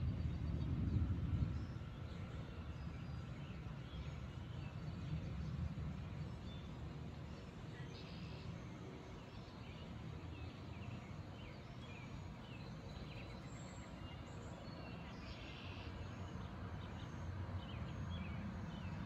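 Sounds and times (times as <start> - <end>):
steady low rumble: 0.0 - 8.5
songbirds chirping: 0.0 - 19.0.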